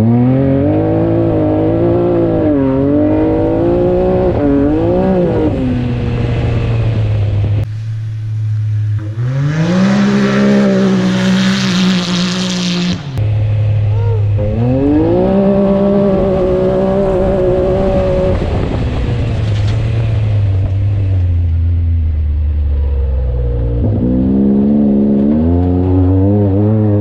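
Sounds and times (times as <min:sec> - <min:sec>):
engine revving hard: 0:00.0 - 0:06.9, 0:08.8 - 0:13.2, 0:14.4 - 0:18.8.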